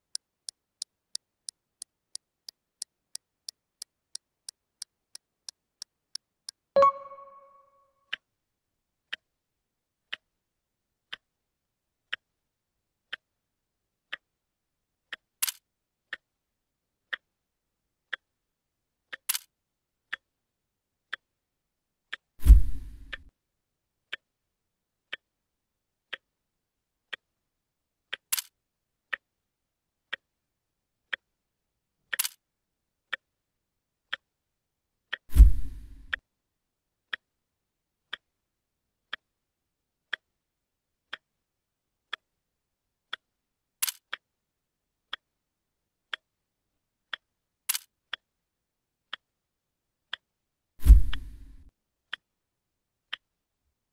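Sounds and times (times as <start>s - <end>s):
clock ticking: 0.0s - 8.2s.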